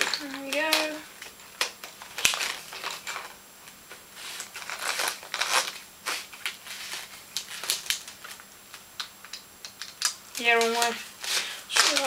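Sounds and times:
plastic toy parts clicking and rattling: 9.0 - 11.0, 11.7 - 12.0.

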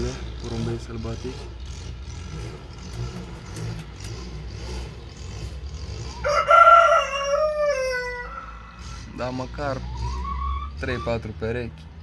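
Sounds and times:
rooster crowing: 6.1 - 9.1.

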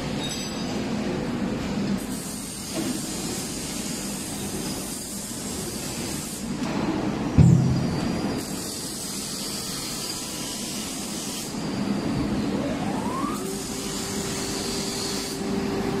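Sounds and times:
motor whine rising in pitch: 12.4 - 16.0.

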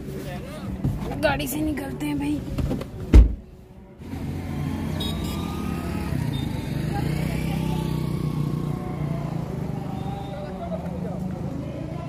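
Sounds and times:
highway traffic rumble: 0.0 - 12.0.

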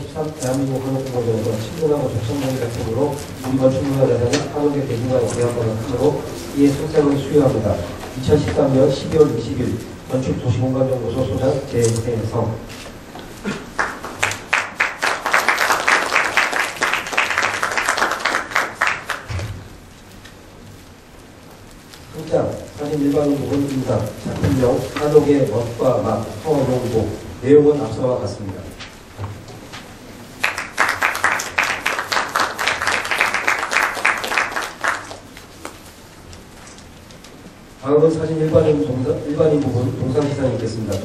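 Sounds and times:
audience applauding: 13.5 - 19.4, 30.4 - 35.4.

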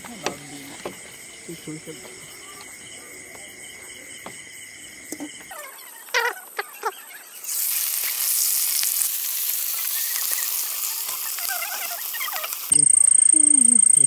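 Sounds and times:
fish sizzling in hot oil: 7.4 - 12.7.

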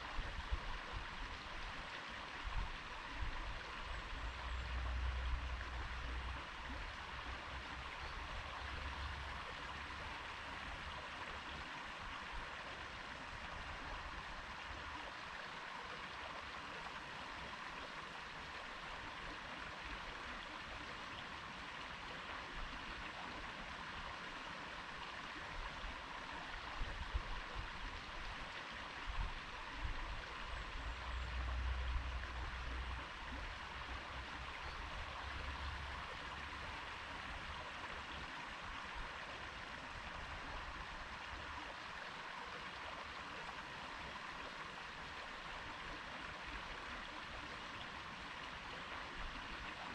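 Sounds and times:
stream flowing over stones: 0.0 - 49.9.

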